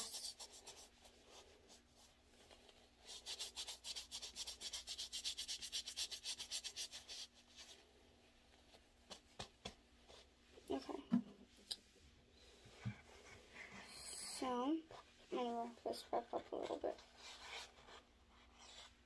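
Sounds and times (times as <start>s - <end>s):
tissue rubbing on skin: 0.0s - 10.5s.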